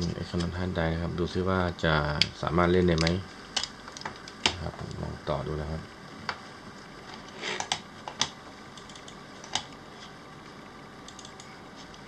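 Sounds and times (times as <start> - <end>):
mouse and keyboard clicks: 11.1 - 11.5.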